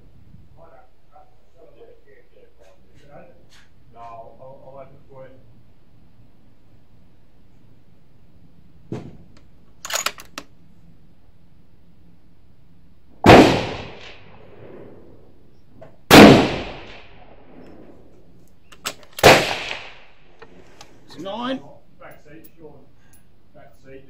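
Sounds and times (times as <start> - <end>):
rifle shots with echo: 13.2 - 15.1, 16.1 - 17.4, 19.2 - 20.3.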